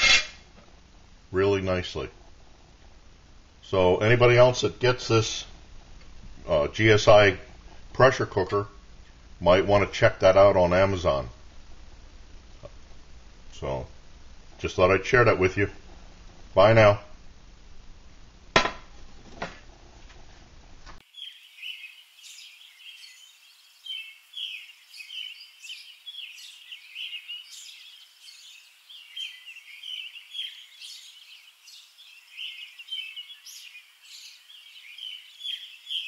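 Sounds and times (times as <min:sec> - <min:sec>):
sharp knocks: 0:18.6 - 0:18.9
small birds chirping: 0:21.0 - 0:36.0.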